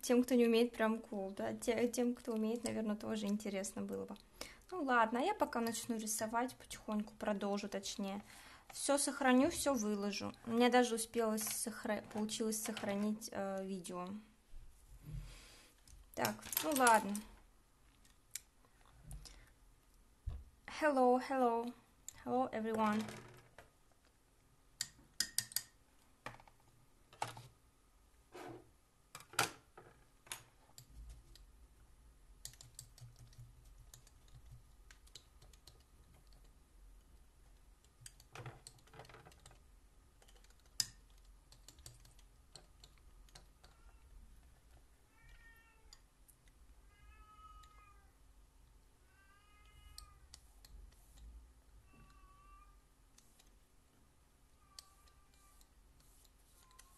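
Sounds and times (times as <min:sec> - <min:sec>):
painting supplies clicking on table: 0:16.2 - 0:17.3.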